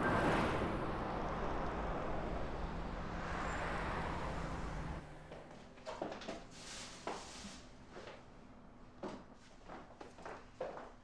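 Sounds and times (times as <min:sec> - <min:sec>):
cars driving past: 0:00.0 - 0:05.8.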